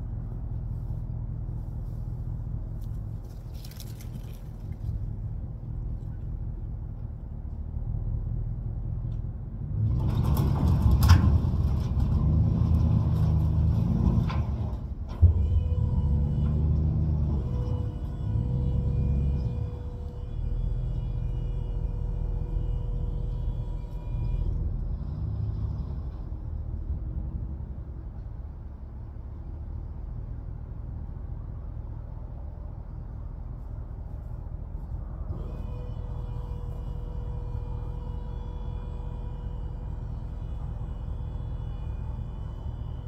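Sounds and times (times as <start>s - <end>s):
truck engine running: 0.0s - 43.0s.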